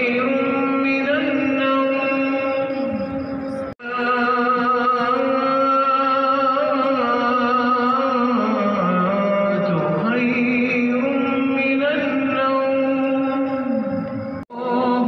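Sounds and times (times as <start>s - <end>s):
man chanting: 0.0s - 3.1s, 3.8s - 13.9s.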